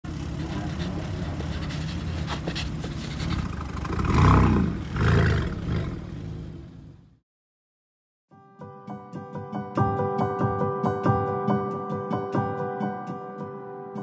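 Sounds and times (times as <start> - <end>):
loud roars: 3.8 - 6.6.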